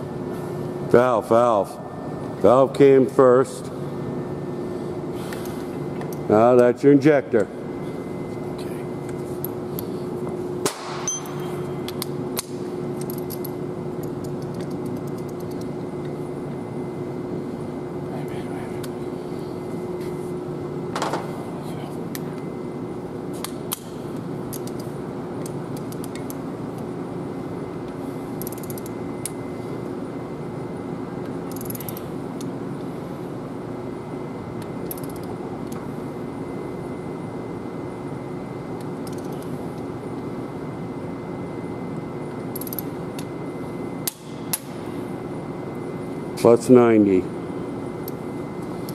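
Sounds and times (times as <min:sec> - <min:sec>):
steady background hum: 0:00.0 - 0:48.9
ratchet wrench clicking: 0:28.4 - 0:28.9, 0:31.5 - 0:31.9, 0:34.9 - 0:35.3, 0:42.5 - 0:42.8.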